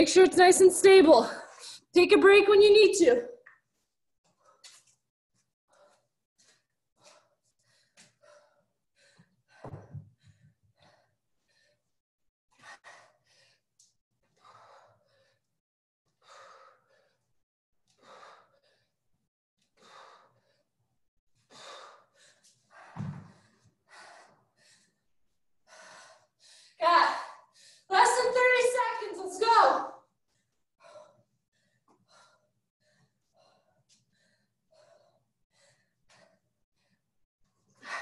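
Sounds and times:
person breathing hard: 5.7s - 12.0s, 12.6s - 17.3s, 18.0s - 19.0s, 21.4s - 27.9s, 30.3s - 37.1s.

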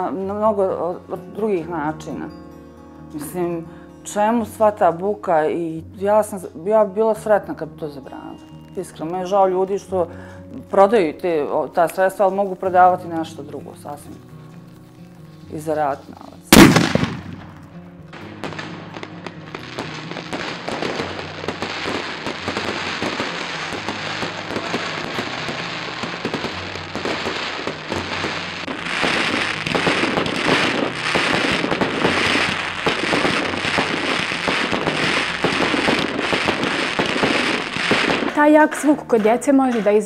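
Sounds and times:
fireworks crackling and popping: 16.1s - 40.0s.

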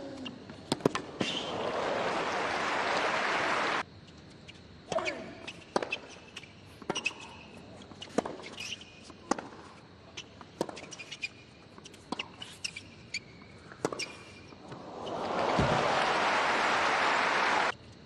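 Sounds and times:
rackets striking tennis ball: 0.6s - 1.6s
shoe squeaks: 1.2s - 1.5s, 4.5s - 15.1s
crowd applause: 1.4s - 3.8s, 14.8s - 17.7s.

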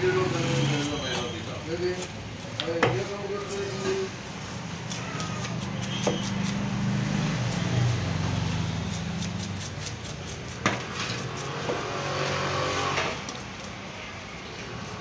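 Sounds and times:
knife scraping fish: 3.3s - 13.8s.

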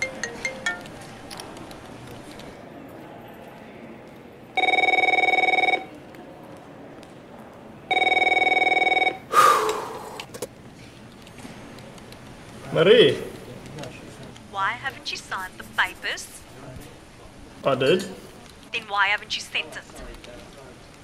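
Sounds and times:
desk telephone ringing: 4.6s - 5.9s, 7.9s - 9.2s
marimba-like phone ringtone: 4.6s - 5.9s, 7.9s - 9.2s.

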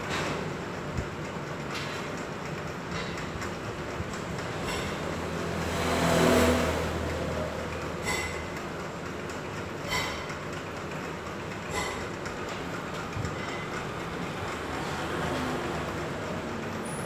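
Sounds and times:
steady background hum: 0.0s - 17.0s
vehicle passing by: 5.1s - 7.8s, 14.6s - 16.4s.

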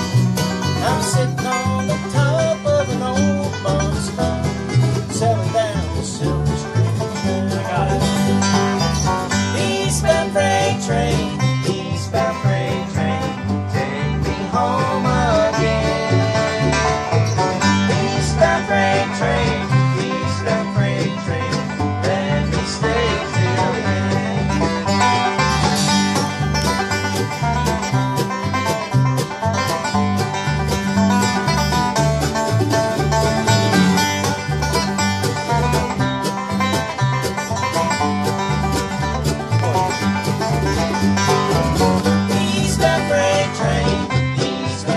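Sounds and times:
acoustic string instruments playing: 0.0s - 44.9s
bluegrass jam on banjo and guitars: 0.0s - 44.9s.

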